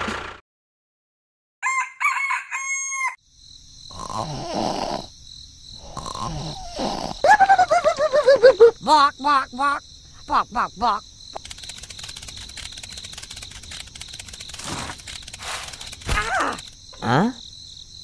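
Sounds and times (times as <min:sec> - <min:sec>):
rooster crowing: 0:01.6 - 0:03.2
high insect trill: 0:01.6 - 0:18.0.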